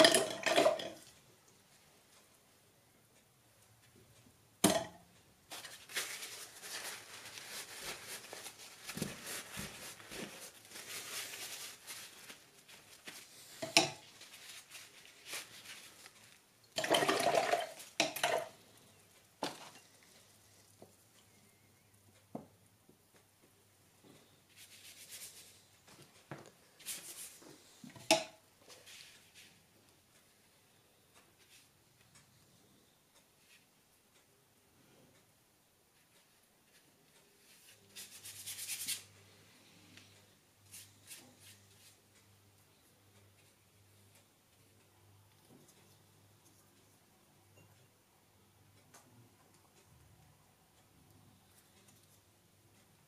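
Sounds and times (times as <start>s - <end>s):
brush swishing on paper and water: 5.5s - 16.4s, 24.5s - 25.6s, 26.8s - 27.6s, 28.7s - 29.6s
brush clinking against glass jars: 13.6s - 14.1s, 16.8s - 18.6s.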